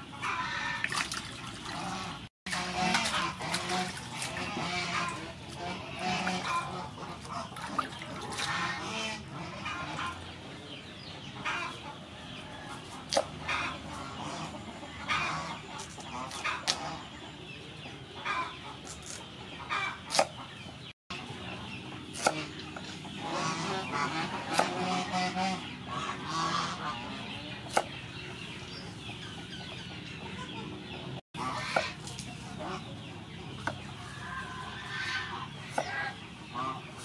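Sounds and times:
chickens clucking: 0.0s - 37.0s
knife chopping on wooden board: 13.1s - 13.3s, 20.1s - 20.3s, 22.1s - 22.4s, 24.5s - 24.8s, 27.7s - 27.9s.

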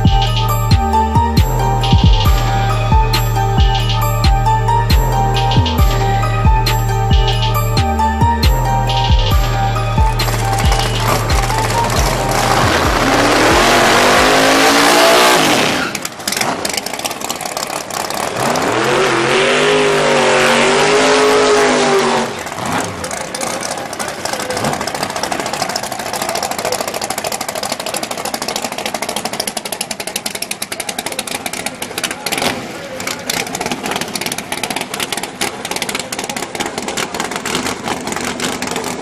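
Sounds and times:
car engine revving hard: 9.7s - 26.4s, 31.2s - 39.0s.

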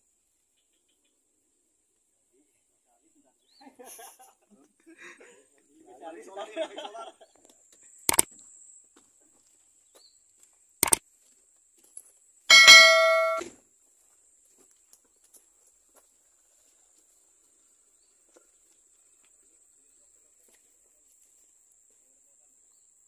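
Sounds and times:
bright bell chime: 12.5s - 13.4s
sharp click: 12.5s - 13.4s.

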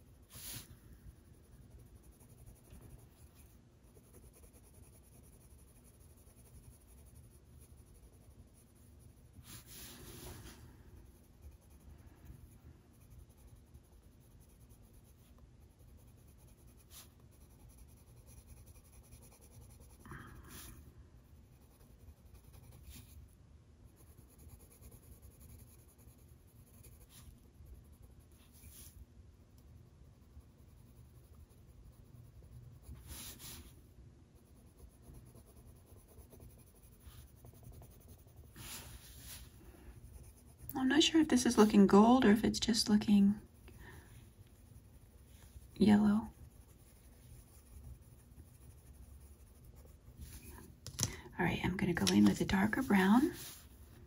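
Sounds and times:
pencil scratching on paper: 0.0s - 29.0s, 30.1s - 33.8s, 34.4s - 54.0s.

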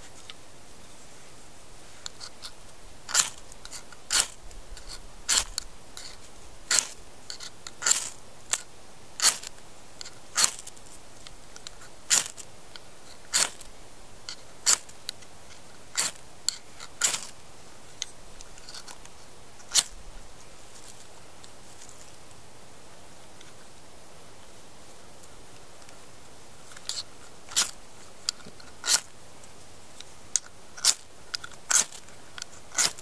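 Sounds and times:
ferro rod scraped by striker: 2.0s - 10.8s, 11.6s - 12.5s, 13.1s - 13.7s, 14.3s - 14.9s, 15.5s - 17.4s, 19.6s - 20.0s, 26.7s - 29.1s, 30.4s - 33.0s.

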